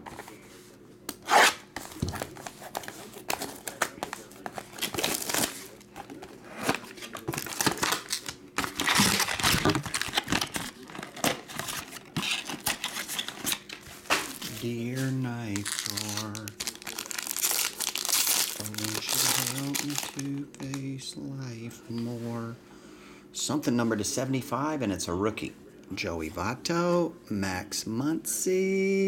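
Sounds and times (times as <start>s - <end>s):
shrink wrap tearing and crinkling: 1.2s - 20.9s.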